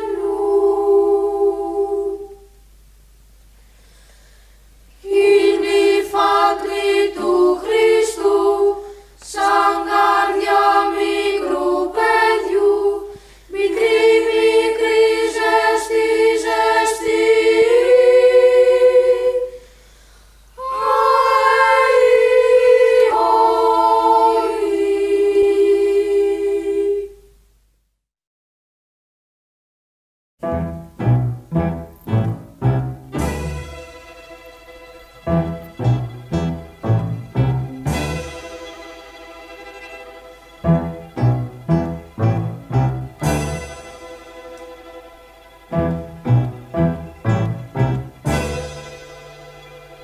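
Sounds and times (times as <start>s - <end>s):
choir singing in close harmony: 0.0s - 2.5s, 5.0s - 19.6s, 20.6s - 27.2s.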